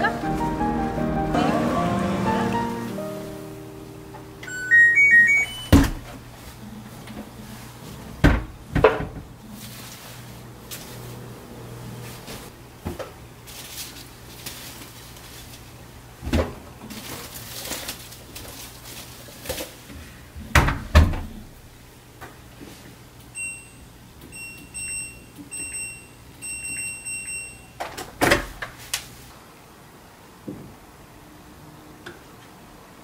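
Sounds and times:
short electronic beeps: 0:04.4 - 0:05.8, 0:24.4 - 0:27.7.

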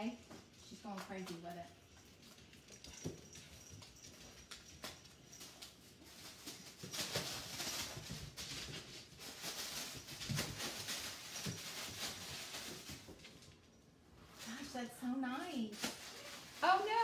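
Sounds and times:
packaging rustling and crinkling: 0:05.6 - 0:13.4, 0:15.7 - 0:17.0.

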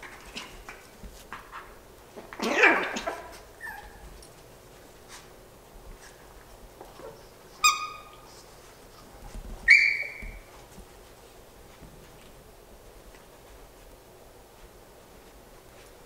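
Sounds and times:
puppies yipping and whimpering: 0:03.6 - 0:04.0, 0:07.6 - 0:08.3, 0:09.7 - 0:10.5
puppy high squeal: 0:03.6 - 0:04.0, 0:07.6 - 0:08.2, 0:09.7 - 0:10.5.

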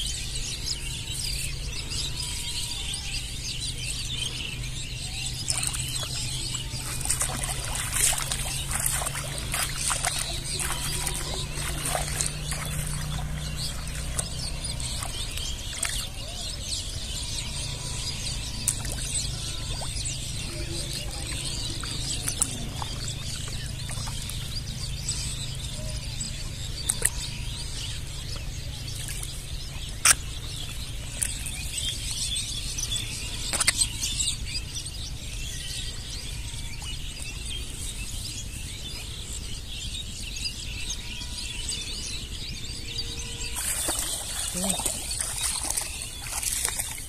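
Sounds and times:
faint bird chirps: 0:04.1 - 0:34.9, 0:40.1 - 0:47.0.

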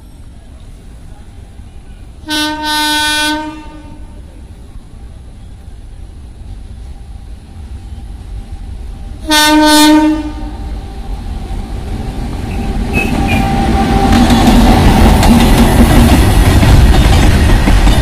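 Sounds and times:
low rumble of approaching train: 0:00.0 - 0:18.0
locomotive horn blast: 0:02.3 - 0:04.1, 0:09.2 - 0:10.6, 0:12.5 - 0:14.2.

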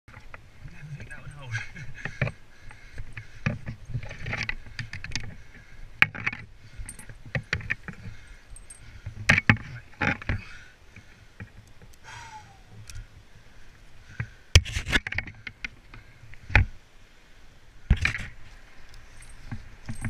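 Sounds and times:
metallic clinks of climbing hardware: 0:06.0 - 0:10.5, 0:18.9 - 0:20.0
rope and gloves scraping on bark: 0:14.2 - 0:16.2.

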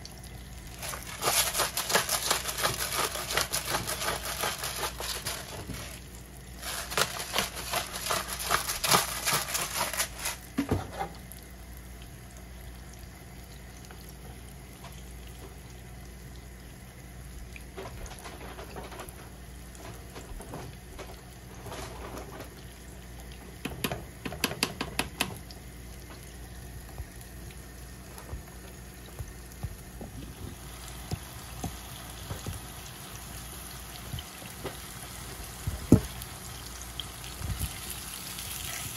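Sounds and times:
fish sizzling in oil: 0:00.0 - 0:17.7, 0:22.4 - 0:38.9
wooden spoon scraping pot: 0:00.8 - 0:06.0, 0:06.6 - 0:11.0.

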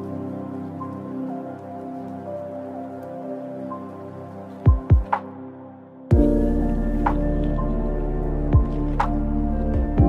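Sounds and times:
deep kick drum: 0:06.1 - 0:06.4.

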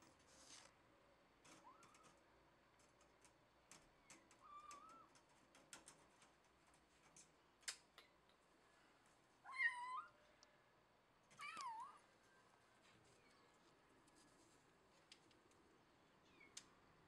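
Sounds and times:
kitten meowing: 0:11.4 - 0:12.0.

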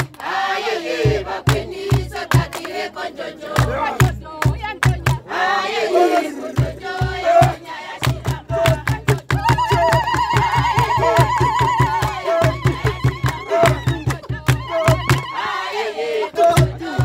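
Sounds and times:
group singing: 0:00.0 - 0:17.0
sharp hand claps: 0:01.5 - 0:02.8, 0:03.6 - 0:05.2, 0:08.0 - 0:15.3
hand drum beating: 0:03.6 - 0:05.2, 0:06.6 - 0:15.3, 0:16.4 - 0:17.0.

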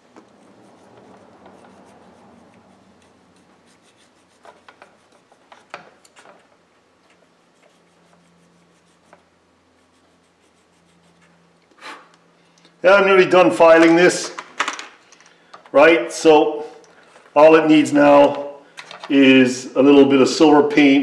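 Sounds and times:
file scraping metal: 0:00.3 - 0:05.8.

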